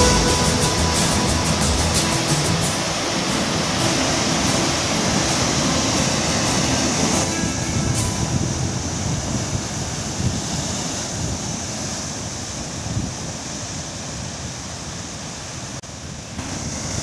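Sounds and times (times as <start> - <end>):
surf crashing over rocks: 0.0 - 13.8
wind buffeting microphone: 1.4 - 13.4.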